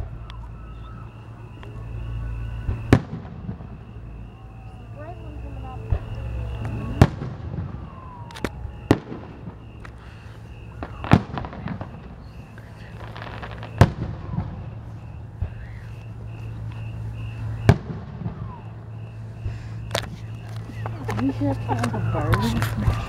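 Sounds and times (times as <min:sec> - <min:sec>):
fireworks crackling: 0:00.0 - 0:23.0
fireworks shells bursting: 0:05.9 - 0:23.0.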